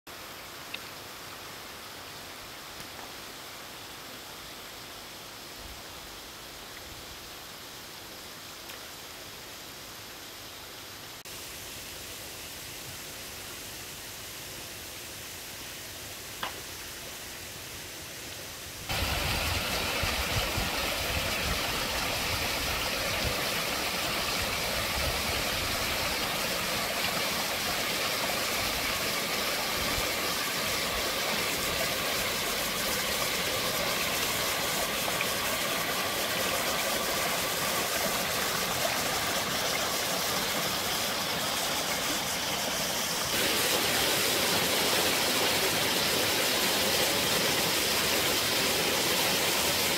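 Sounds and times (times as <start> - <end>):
faint hiss: 0.1 - 49.9
stream splashing over rocks: 18.9 - 49.9.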